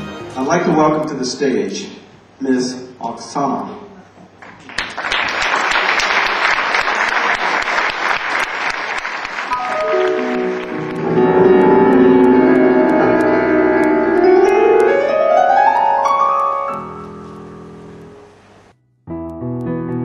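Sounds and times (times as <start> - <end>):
audience applauding: 4.4 - 16.5
keyboard piano music: 9.4 - 18.4, 19.0 - 20.0.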